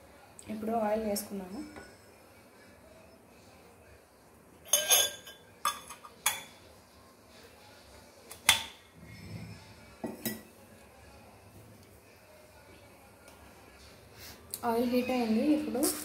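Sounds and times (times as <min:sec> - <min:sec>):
cookware and utensils clinking: 0:01.5 - 0:02.1, 0:04.6 - 0:06.7, 0:08.3 - 0:10.6.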